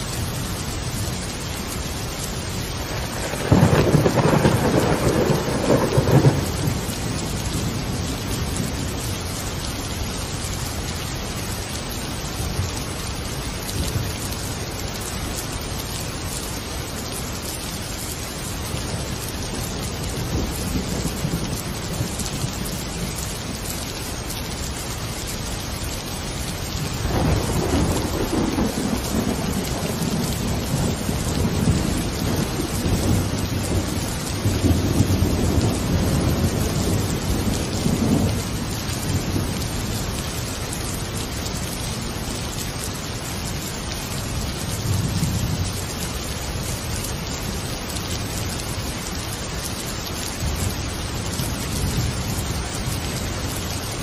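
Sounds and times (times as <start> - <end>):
steady rain: 0.0 - 54.0
thunder rumbling: 2.7 - 9.6, 26.7 - 41.2.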